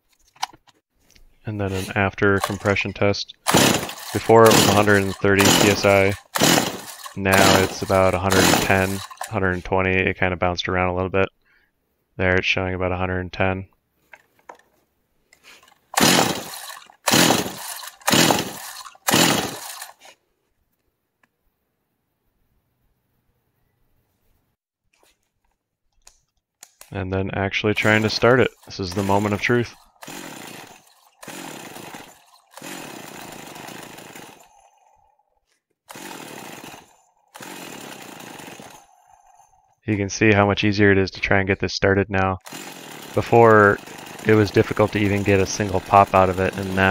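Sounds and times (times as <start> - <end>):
engine cranking over: 1.5 - 9.7, 15.5 - 20.1, 27.8 - 35.2, 35.9 - 39.8, 42.4 - 46.9
chainsaw recoil starter pulls: 1.5 - 9.8, 14.2 - 14.7, 15.4 - 20.2, 27.8 - 39.8, 42.4 - 46.9.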